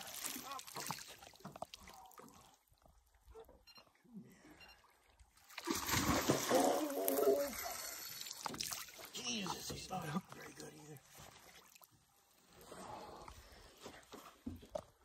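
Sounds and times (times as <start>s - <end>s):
fish thrashing and splashing: 5.5s - 9.8s.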